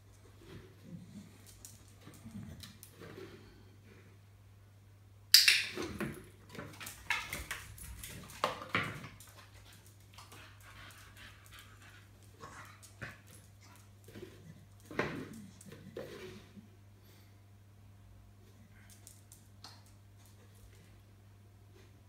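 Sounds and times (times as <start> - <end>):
plastic pipes clattering on tile: 5.4 - 9.4.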